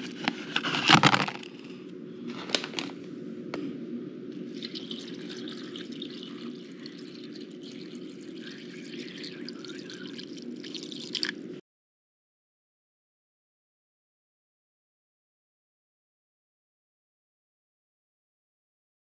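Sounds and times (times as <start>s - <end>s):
water pouring onto noodles: 4.5s - 11.4s.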